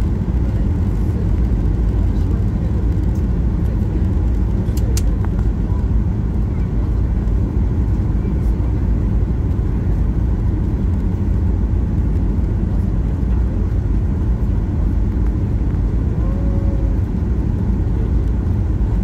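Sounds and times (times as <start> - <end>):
airplane cabin engine rumble: 0.0 - 19.0.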